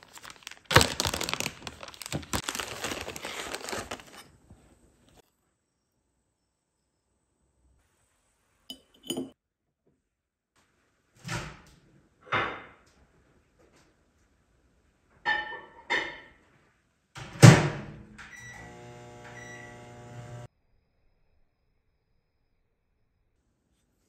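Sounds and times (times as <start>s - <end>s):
fork and dishes clinking: 8.7s - 9.4s
microwave oven humming: 18.3s - 20.5s.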